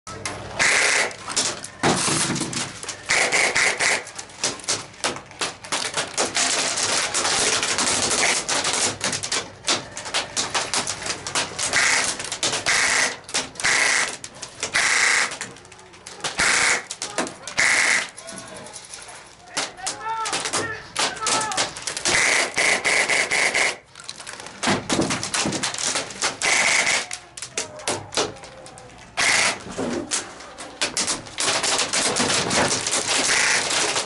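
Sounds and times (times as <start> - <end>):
airsoft rifles firing bursts: 0.6 - 1.2, 3.0 - 4.1, 11.6 - 15.5, 16.3 - 17.0, 17.6 - 18.1, 20.4 - 23.8, 25.3 - 27.1, 29.2 - 29.6, 31.4 - 34.0.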